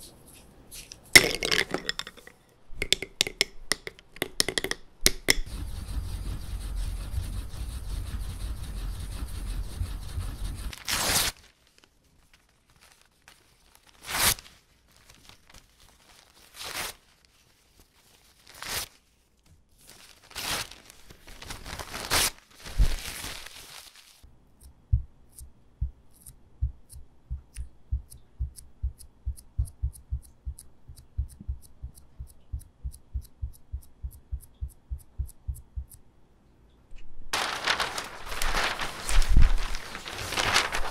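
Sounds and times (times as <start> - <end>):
seal tapping into paste pot: 1.2 - 5.5
brushes swishing on inkstone: 5.4 - 10.8
paper rustling and crinkling: 9.9 - 24.3, 37.4 - 40.9.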